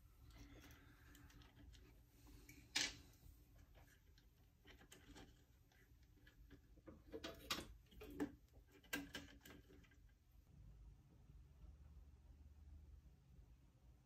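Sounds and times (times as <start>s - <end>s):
faint clicks and knocks of handling parts: 0.1s - 10.3s.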